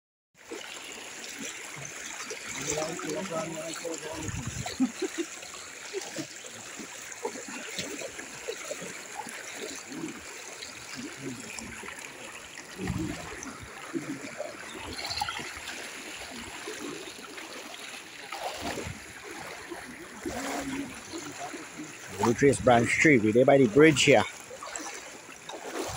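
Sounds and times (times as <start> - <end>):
people wading through water: 0.4 - 25.9.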